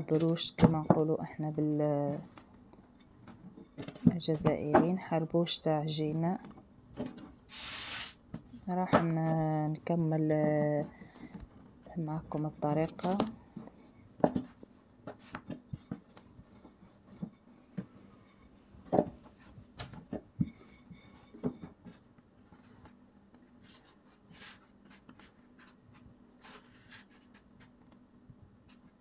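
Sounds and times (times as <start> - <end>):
hands rubbing dough: 14.6 - 28.0.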